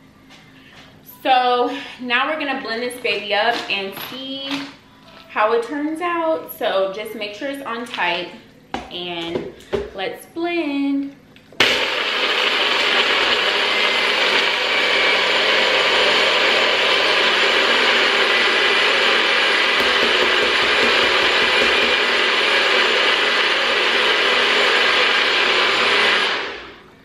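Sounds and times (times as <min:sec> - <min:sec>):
blender churning ice: 0:11.6 - 0:26.8.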